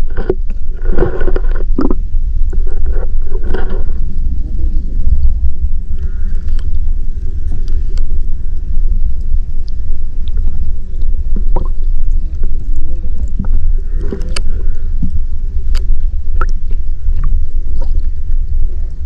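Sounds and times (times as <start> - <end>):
muffled underwater rumble: 0.0 - 19.0
faint clicks: 5.2 - 11.8, 12.6 - 16.6.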